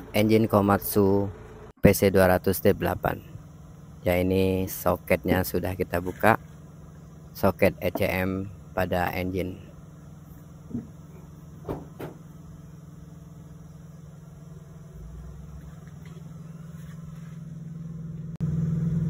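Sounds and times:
low mechanical engine hum: 0.0 - 19.0
short knocks: 10.7 - 12.3.

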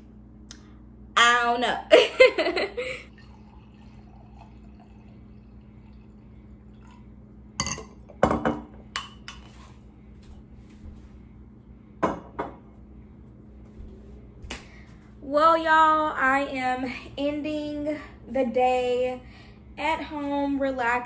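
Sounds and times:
steady low hum: 0.0 - 21.0
wine pouring into glass: 3.1 - 8.0.

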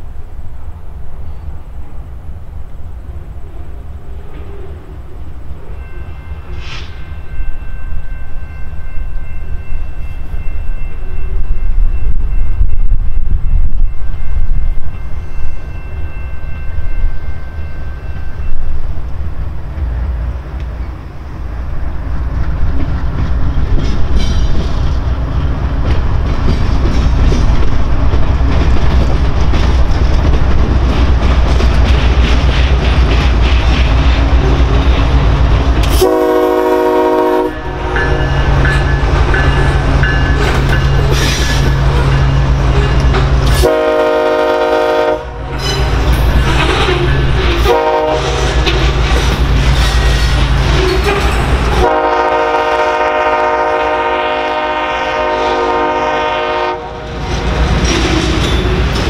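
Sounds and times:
freight train rumbling past: 0.0 - 59.0
locomotive horn blasts: 35.9 - 38.2, 43.5 - 46.0, 47.6 - 48.9, 51.8 - 57.2.

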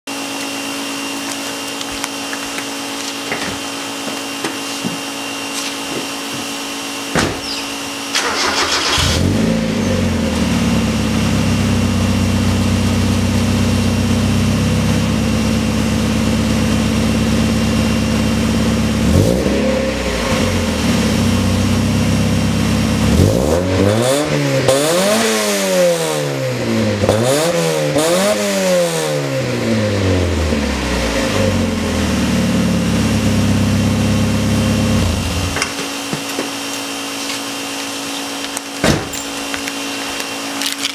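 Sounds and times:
car engine starting and idling: 6.8 - 27.2, 28.8 - 40.9
car engine revving: 7.8 - 35.6.

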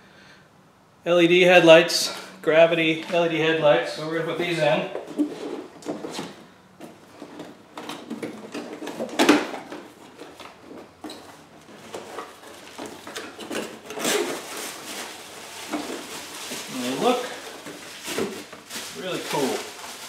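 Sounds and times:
cardboard and paper rustling: 4.3 - 20.0.

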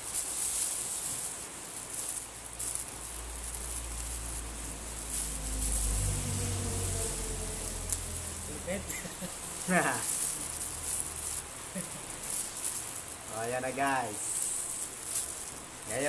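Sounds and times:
high hiss: 0.0 - 16.0
plastic bag crinkling: 0.0 - 16.0
low hum: 3.0 - 12.3.

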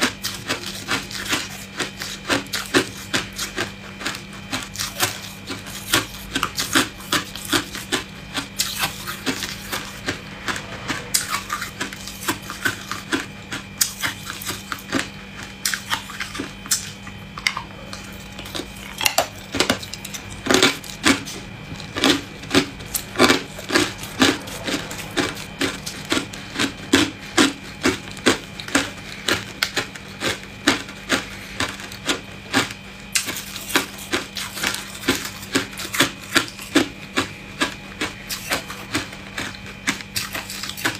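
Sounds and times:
steady low hum: 0.0 - 40.9.

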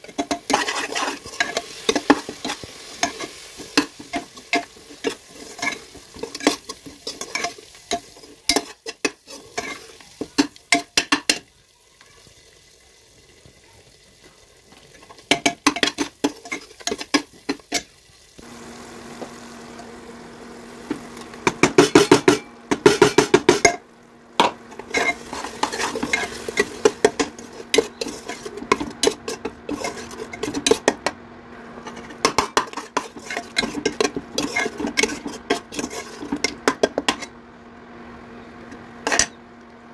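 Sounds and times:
metal spoon scraping a pot: 0.0 - 10.0, 24.7 - 31.0, 31.8 - 37.3
hot oil sizzling: 0.0 - 39.9.

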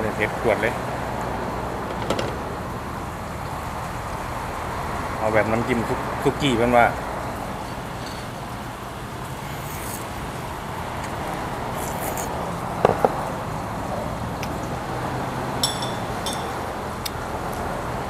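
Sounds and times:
steady background hum: 0.0 - 18.0
tableware clinking: 15.6 - 16.7.

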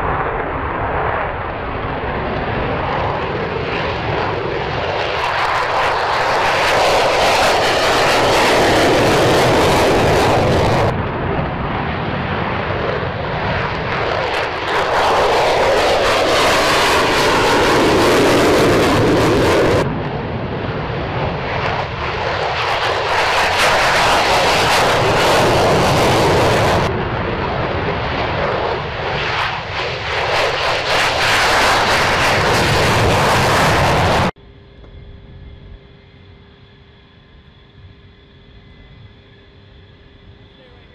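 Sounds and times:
loud jet engine roar: 0.0 - 40.9.

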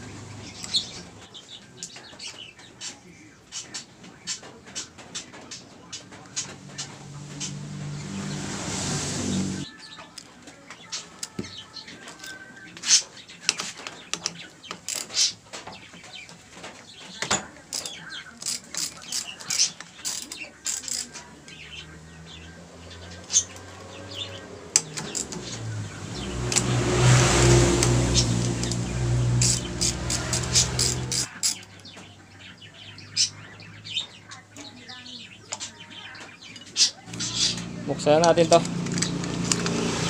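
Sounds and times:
motor engine: 0.0 - 1.3, 6.0 - 9.7, 20.2 - 32.0, 37.1 - 40.0
hand tools clicking and tapping: 10.1 - 21.6, 23.1 - 32.1, 36.5 - 40.0.

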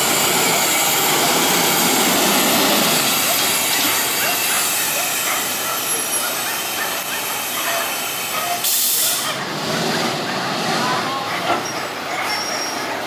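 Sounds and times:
garbage truck engine drone: 0.0 - 7.3, 8.3 - 13.0
air brake hiss: 8.1 - 9.4.

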